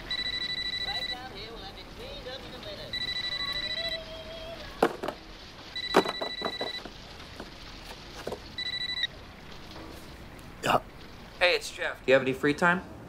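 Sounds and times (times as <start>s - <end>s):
electronic telephone ringing: 0.0s - 1.4s, 2.9s - 4.1s, 5.8s - 6.9s, 8.6s - 9.1s.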